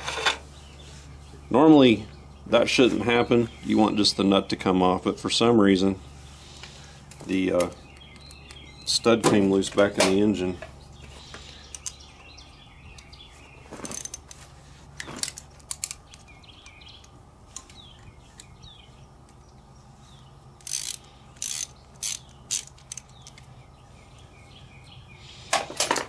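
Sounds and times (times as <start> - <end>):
socket ratchet clicking: 20.6 - 23.5.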